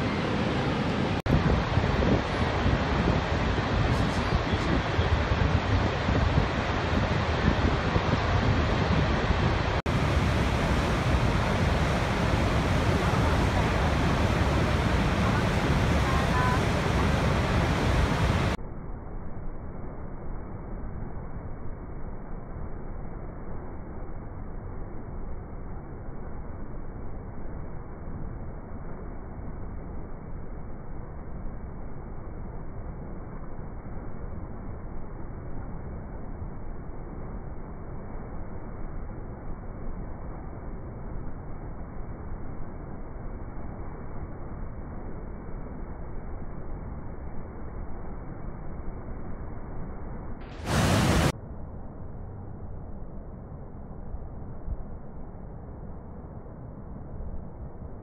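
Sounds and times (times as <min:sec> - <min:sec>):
waterfall rushing: 0:00.0 - 0:18.6, 0:50.5 - 0:51.3.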